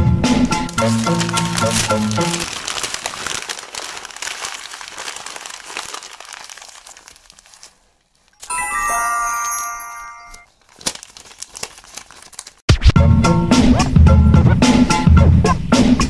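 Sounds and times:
paper crumpling: 0.4 - 12.7
bright high chime: 8.4 - 10.5.

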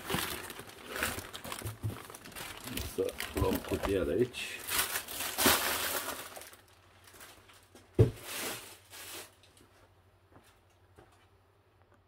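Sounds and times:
plastic packaging crinkling: 0.0 - 9.6.

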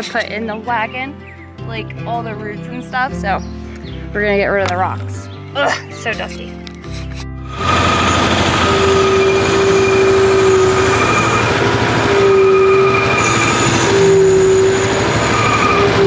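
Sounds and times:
hydraulic whine: 7.4 - 16.0
skid steer engine running hard: 7.4 - 16.0.

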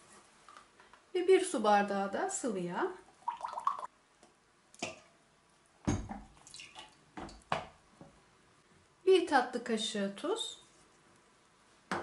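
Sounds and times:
liquid dripping and splashing: 3.2 - 3.9, 6.2 - 7.5
oil pouring: 3.2 - 3.9.

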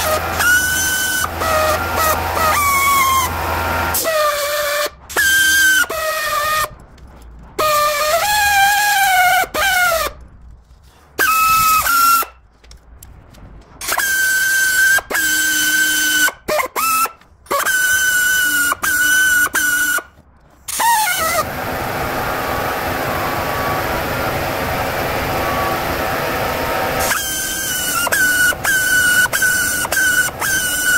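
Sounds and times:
pneumatic air saw whining: 0.0 - 6.8, 7.6 - 10.2, 10.9 - 12.4, 13.8 - 30.9.

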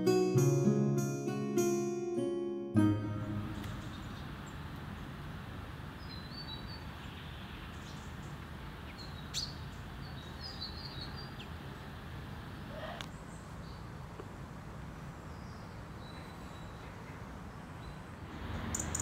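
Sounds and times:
songbird chirping: 0.0 - 5.2
low outdoor background noise: 2.8 - 19.0.

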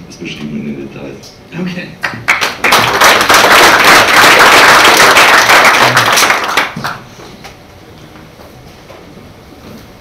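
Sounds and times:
audience applauding: 2.0 - 7.1.

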